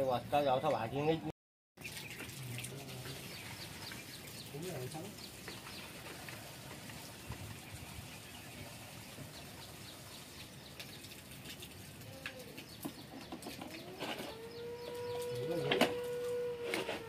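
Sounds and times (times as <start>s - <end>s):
bird chirps: 12.6s - 16.0s
gliding bird call: 13.6s - 17.0s.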